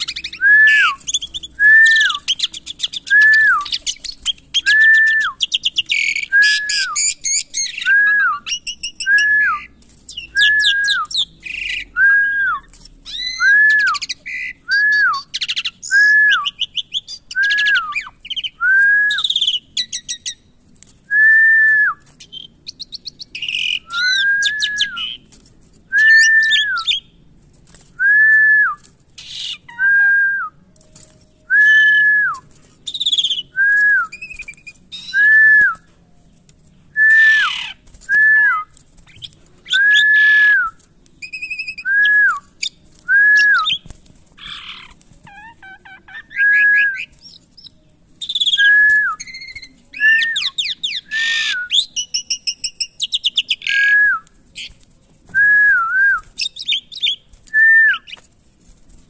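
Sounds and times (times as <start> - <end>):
starling chattering and trilling: 0.0 - 11.9, 22.2 - 25.3, 29.2 - 29.8, 37.1 - 38.1, 42.6 - 54.0.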